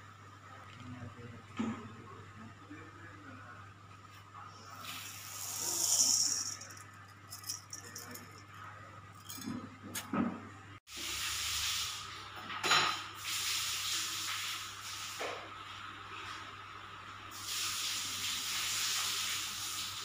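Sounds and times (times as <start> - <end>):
grainy hiss: 4.8 - 6.7, 17.3 - 20.0
rice rattling in steel bowl: 5.4 - 8.5.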